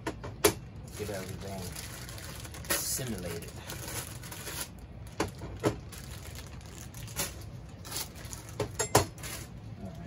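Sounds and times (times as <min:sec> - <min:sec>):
plastic bag crinkling: 0:00.8 - 0:10.0.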